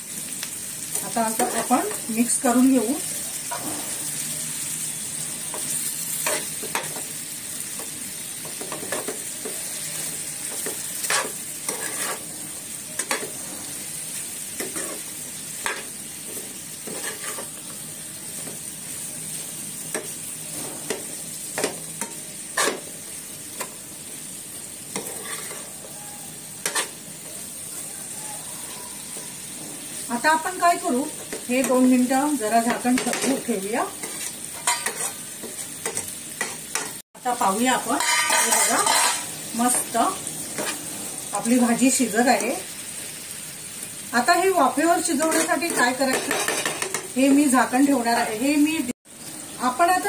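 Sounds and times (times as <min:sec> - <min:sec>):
vegetables sizzling in oil: 0:00.0 - 0:50.0
spatula scraping and tapping pan: 0:05.5 - 0:07.1, 0:07.8 - 0:12.3, 0:13.0 - 0:13.4, 0:14.6 - 0:17.6, 0:19.9 - 0:22.9, 0:24.9 - 0:26.0, 0:26.6 - 0:27.0, 0:32.6 - 0:37.0, 0:38.0 - 0:39.9, 0:45.1 - 0:47.2.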